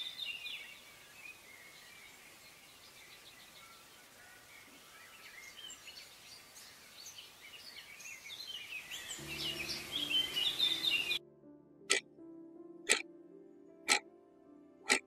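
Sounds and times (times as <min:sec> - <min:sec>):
faint outdoor hiss: 0:00.0 - 0:11.2
small birds chirping: 0:00.0 - 0:11.2
low held music chord: 0:09.1 - 0:14.9.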